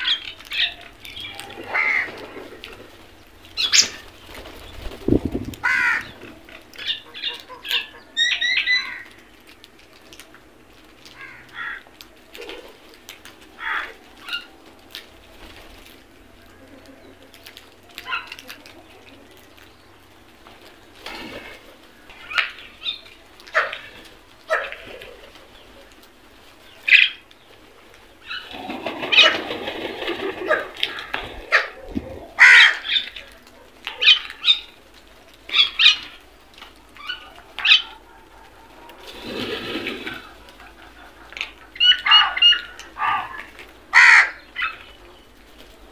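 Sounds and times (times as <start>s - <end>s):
crows and mynas calling: 0.0s - 9.6s, 11.0s - 34.8s, 35.5s - 45.9s
crows cawing: 1.3s - 2.6s, 5.6s - 6.4s, 8.7s - 9.2s, 11.1s - 12.0s, 13.6s - 14.4s, 32.4s - 33.1s, 40.6s - 44.9s.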